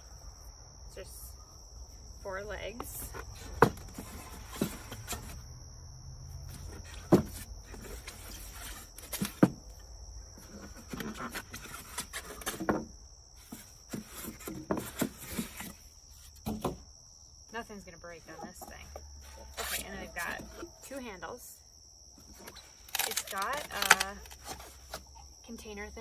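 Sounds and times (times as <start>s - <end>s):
crickets buzzing: 0.0s - 26.0s
styrofoam rubbing and scraping: 10.4s - 12.7s, 19.2s - 20.9s.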